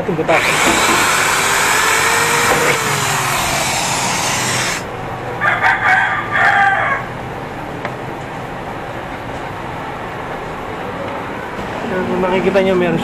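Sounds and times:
electric drill boring: 0:00.4 - 0:04.9
rooster crowing: 0:05.4 - 0:07.2.

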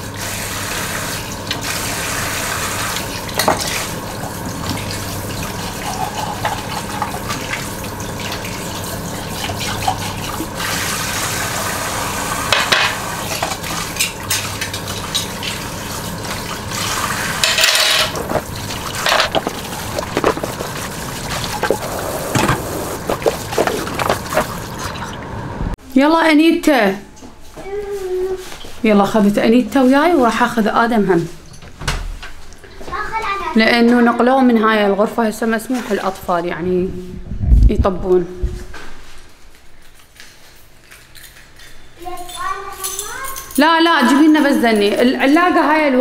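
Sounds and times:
dishes clinking against sink: 0:17.4 - 0:24.6
tap running into sink: 0:17.4 - 0:24.9
steady low hum: 0:18.0 - 0:26.0.

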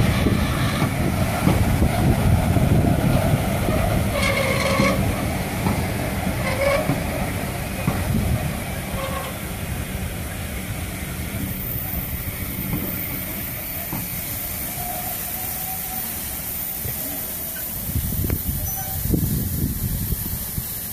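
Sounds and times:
hiss: 0:00.0 - 0:20.9
train wheels rumbling: 0:00.0 - 0:20.9
higher hiss: 0:11.5 - 0:20.9.

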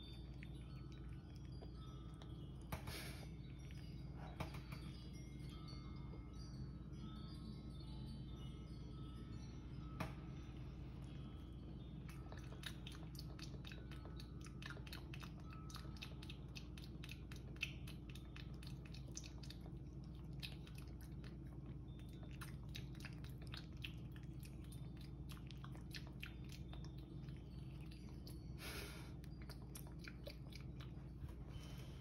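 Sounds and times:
steady low hum: 0:00.0 - 0:32.0
kitten chewing wet mouth clicks: 0:12.1 - 0:28.4.

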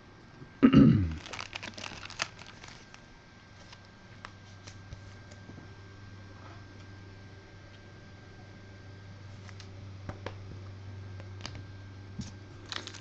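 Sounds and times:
plastic crinkling: 0:01.2 - 0:04.8, 0:12.2 - 0:13.0.

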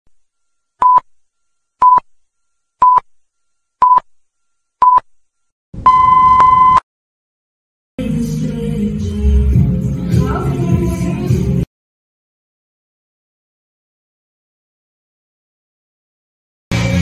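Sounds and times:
countdown beeps: 0:00.8 - 0:01.0, 0:01.8 - 0:02.0, 0:02.8 - 0:03.0
music: 0:08.0 - 0:11.7, 0:16.7 - 0:17.0.

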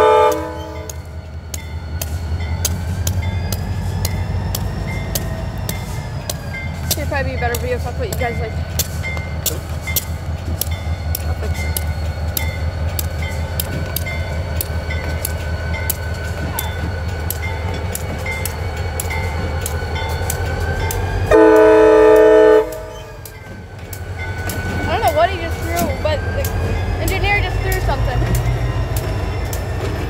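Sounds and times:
locomotive horn blast: 0:00.0 - 0:01.0, 0:21.3 - 0:23.1
diesel locomotive rumbling past: 0:00.0 - 0:30.0
railroad crossing bell dinging: 0:00.0 - 0:30.0.

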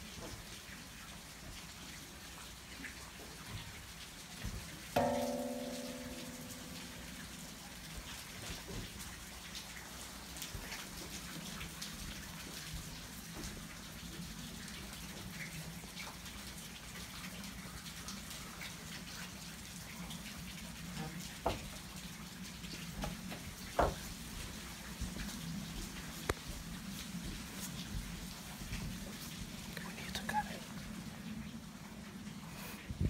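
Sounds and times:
water pattering and dripping: 0:00.0 - 0:33.0
sharp knocks: 0:05.0 - 0:07.4.

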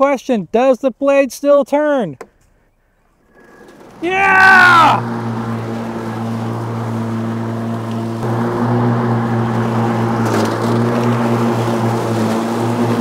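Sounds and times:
electric mower motor hum: 0:03.3 - 0:13.0.

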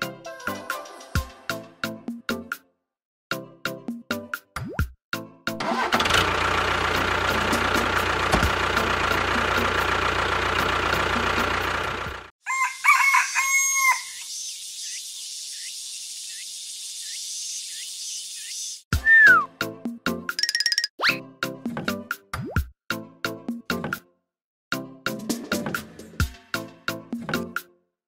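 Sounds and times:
vehicle engine running: 0:05.6 - 0:12.3
rooster crowing: 0:12.4 - 0:14.3
small bird chirps: 0:13.8 - 0:18.8, 0:20.4 - 0:21.2.

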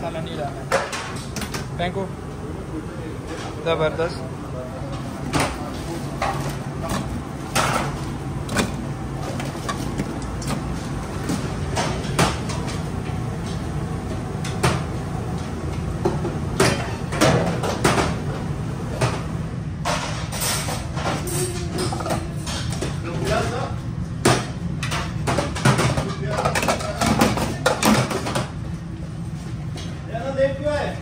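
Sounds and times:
steady low hum: 0:00.0 - 0:31.0
dishes and trays clinking: 0:00.6 - 0:01.7, 0:04.9 - 0:12.8, 0:16.1 - 0:18.2, 0:19.8 - 0:23.6, 0:24.2 - 0:28.5.

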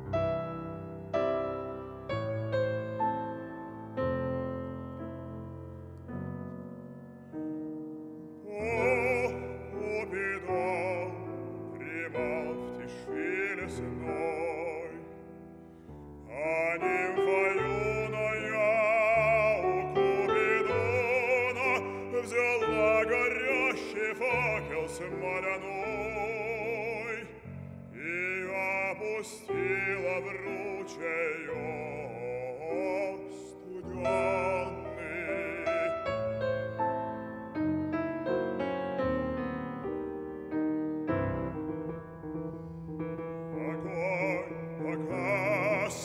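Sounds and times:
grand piano accompaniment: 0:00.0 - 0:46.0
bass-baritone singing: 0:08.4 - 0:15.2, 0:16.3 - 0:36.6, 0:43.5 - 0:46.0.

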